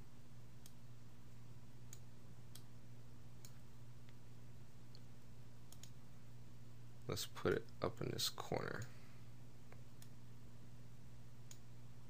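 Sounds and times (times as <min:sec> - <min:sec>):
low electrical hum: 0:00.0 - 0:12.0
computer mouse clicks: 0:01.9 - 0:02.7, 0:03.4 - 0:04.2, 0:05.7 - 0:06.0, 0:11.4 - 0:11.7.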